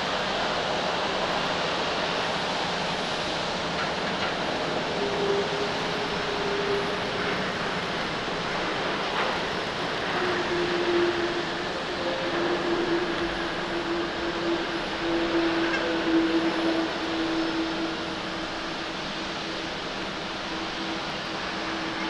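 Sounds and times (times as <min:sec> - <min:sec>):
droning tone: 0:04.6 - 0:22.0.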